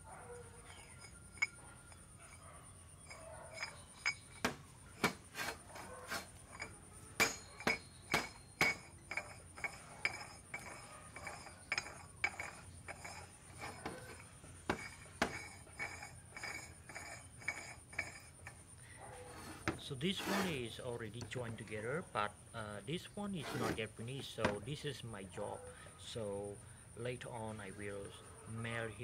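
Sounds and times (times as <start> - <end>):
metal knocking and clinking: 0.2 - 20.4.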